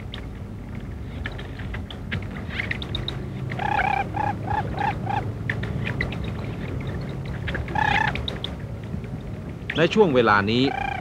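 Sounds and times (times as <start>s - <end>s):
steady low hum: 0.0s - 11.0s
ducks calling: 3.5s - 5.4s, 7.4s - 8.4s, 10.5s - 11.0s.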